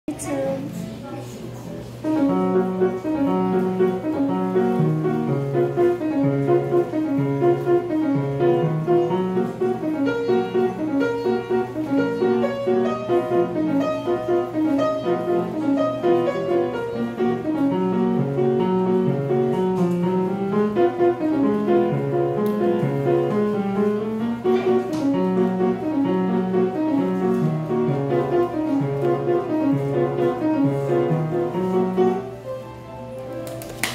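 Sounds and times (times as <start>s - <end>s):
grand piano playing: 0.1s - 33.9s.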